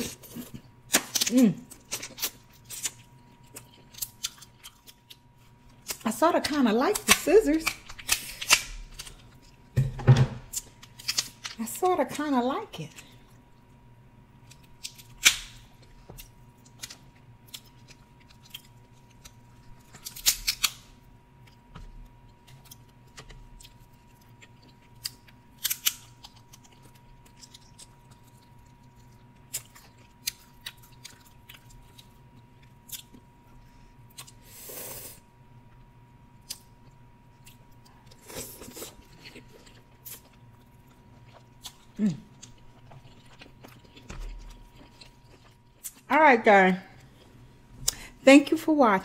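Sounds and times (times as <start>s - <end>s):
crab shell cracking: 6.9s - 9.5s, 10.5s - 11.6s, 14.4s - 21.6s, 22.3s - 33.2s
quiet chewing: 21.4s - 34.4s, 35.7s - 46.1s.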